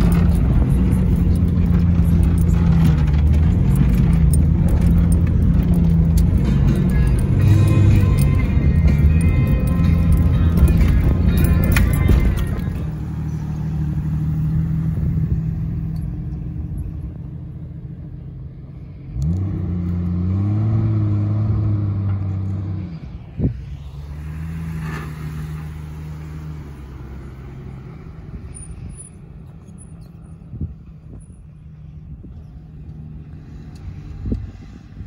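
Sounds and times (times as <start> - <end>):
off-road engines crawling: 0.0 - 35.0
engine revving up: 19.1 - 28.2.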